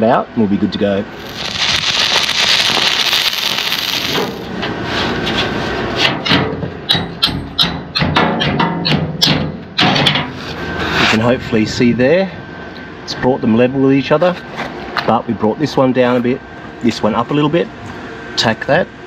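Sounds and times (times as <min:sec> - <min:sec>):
welding arc crackling and hissing: 0:01.1 - 0:04.6
hammer strikes on steel: 0:06.2 - 0:10.0.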